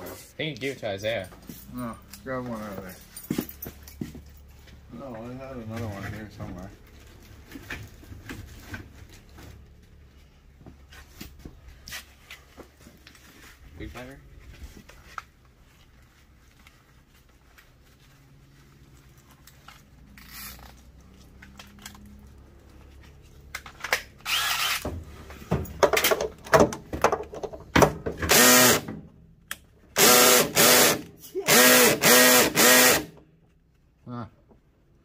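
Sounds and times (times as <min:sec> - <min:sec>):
cordless drill whining: 0:24.2 - 0:24.8, 0:28.3 - 0:28.9, 0:30.0 - 0:33.2.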